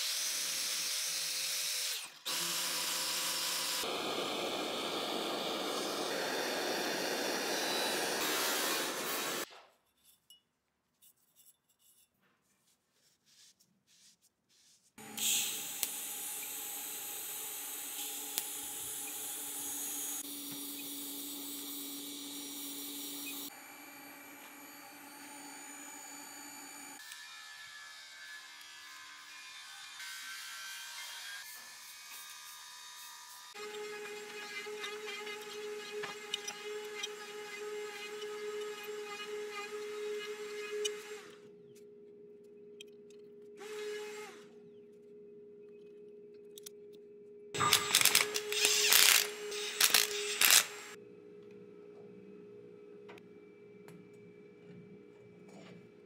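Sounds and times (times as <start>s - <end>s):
welding arc hissing: 15.0s - 16.5s, 47.6s - 51.0s.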